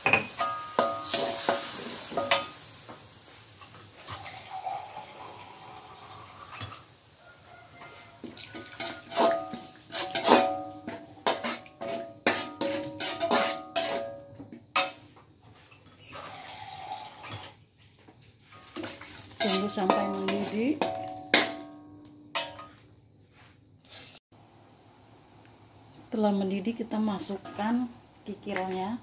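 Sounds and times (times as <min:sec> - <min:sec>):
metal spatula scraping a wok: 0:00.2 - 0:02.7, 0:07.8 - 0:17.6, 0:18.4 - 0:21.7, 0:22.3 - 0:24.2, 0:27.3 - 0:28.9.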